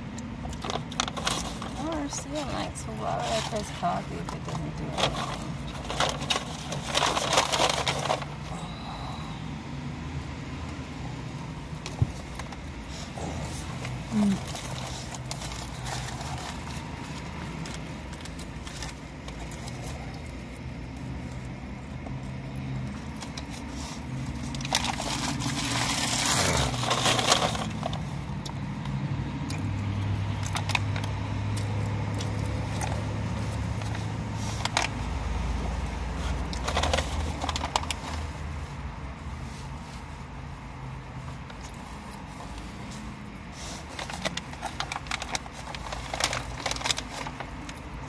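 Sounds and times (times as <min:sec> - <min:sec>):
low steady car hum: 0:00.0 - 0:48.0
paper wrapper crinkling: 0:00.4 - 0:09.1, 0:11.6 - 0:28.9, 0:30.0 - 0:48.0
chewing and smacking: 0:11.6 - 0:34.2.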